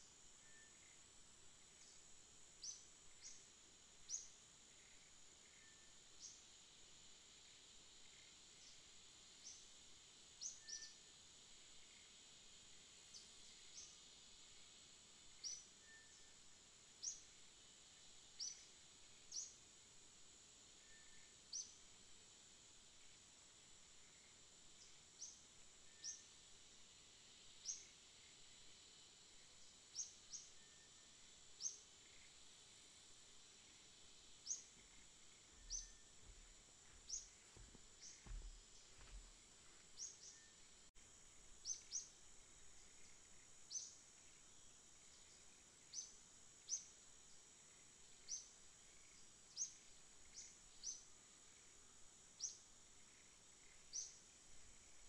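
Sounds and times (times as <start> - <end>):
steady high-pitched hiss: 0.0 - 55.0.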